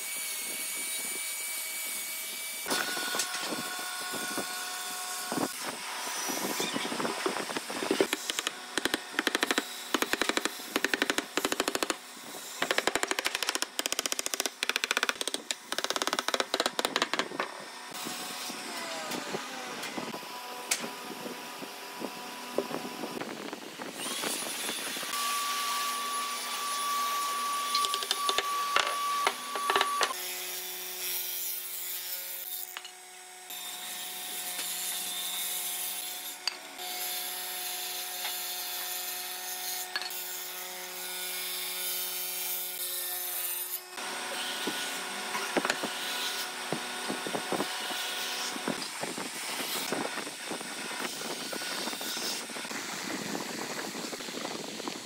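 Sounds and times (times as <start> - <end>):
hatchet chopping log: 8.1 - 12.0
wooden parts knocking: 8.1 - 12.0, 12.6 - 17.5.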